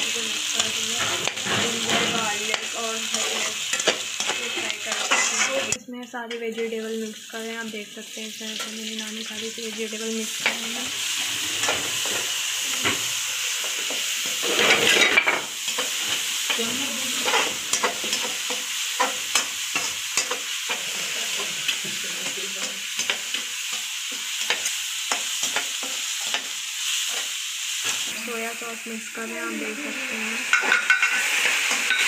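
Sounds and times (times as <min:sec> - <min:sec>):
vegetables sizzling in oil: 0:00.0 - 0:32.0
spatula scraping metal pan: 0:00.6 - 0:05.8, 0:14.4 - 0:21.6.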